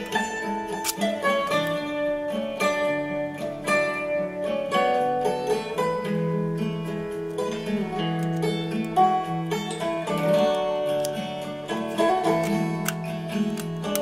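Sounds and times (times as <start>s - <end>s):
plucked guitar melody: 0.0s - 14.0s.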